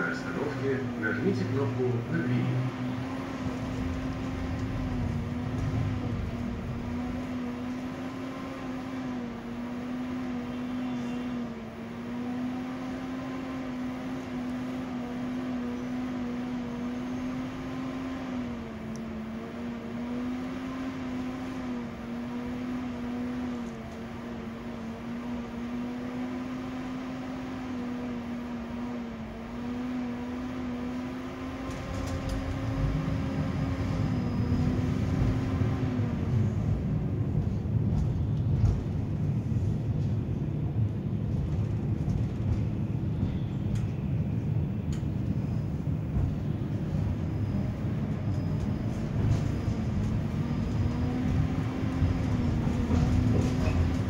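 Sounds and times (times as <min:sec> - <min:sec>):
low rumble: 0:00.0 - 0:07.8
tram electrical hum: 0:00.0 - 0:54.0.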